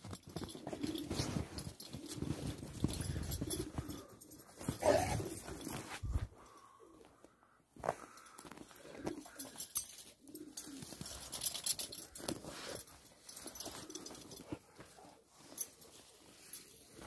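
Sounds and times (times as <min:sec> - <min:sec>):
dogs whining and grunting: 0:00.5 - 0:06.2.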